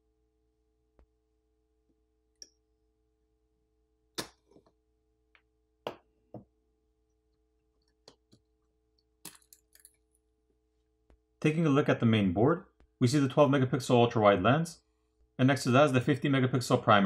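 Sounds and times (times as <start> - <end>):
small tools clicking and tapping: 9.2 - 10.1.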